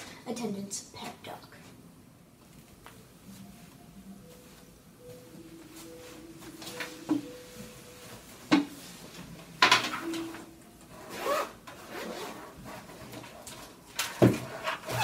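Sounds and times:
fabric rustling: 2.4s - 10.2s
backpack unzipping: 11.0s - 13.1s, 14.6s - 15.0s.

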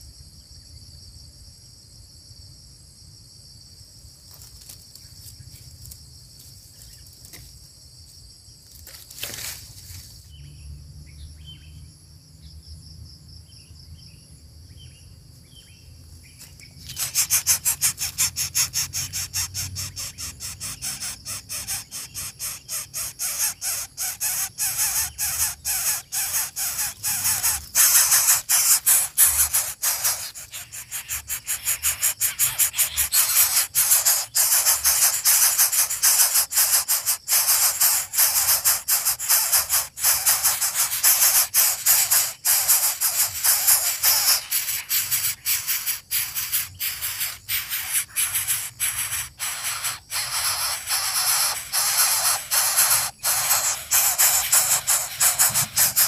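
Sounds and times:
insects trilling: 0.0s - 56.0s
bird chirps: 10.2s - 12.7s, 13.5s - 56.0s
rhythmic scraping: 48.4s - 56.0s.

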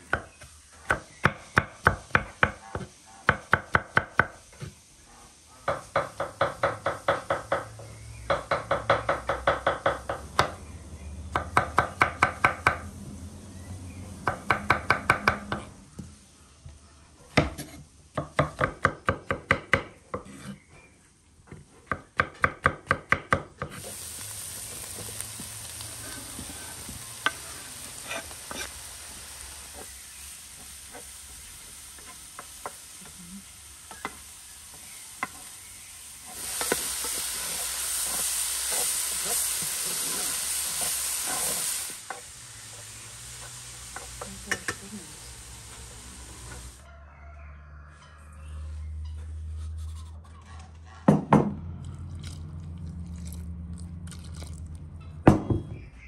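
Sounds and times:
food sizzling in frying pan: 23.7s - 46.9s.

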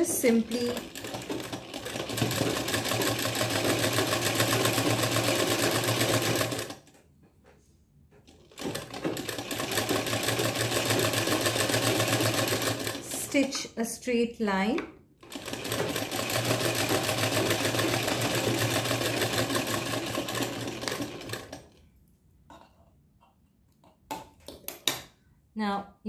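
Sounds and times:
sewing machine running: 0.0s - 6.9s, 8.3s - 13.5s, 15.2s - 21.8s.

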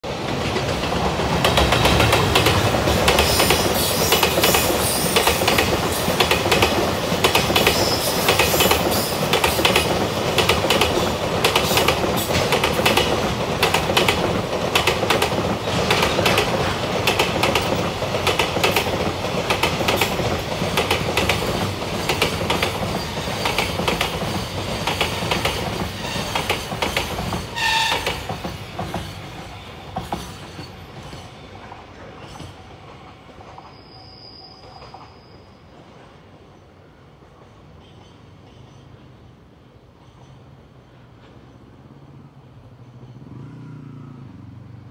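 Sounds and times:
freight train wheels clattering: 0.1s - 33.8s
train wheel squeal: 3.1s - 6.7s, 7.3s - 9.9s, 22.0s - 44.2s.

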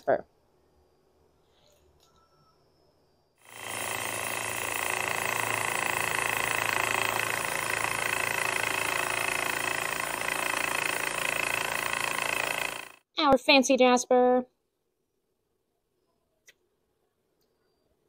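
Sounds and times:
saw grinding whine on stone: 3.4s - 13.0s.

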